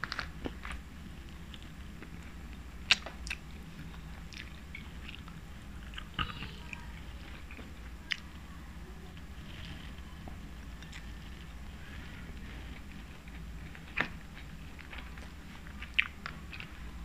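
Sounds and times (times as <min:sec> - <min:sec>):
chewing and biting meat: 0:12.4 - 0:17.0.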